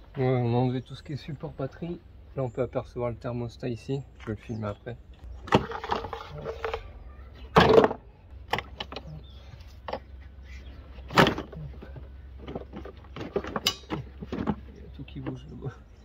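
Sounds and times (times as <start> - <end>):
plastic hoses clicking and knocking: 11.1 - 15.5.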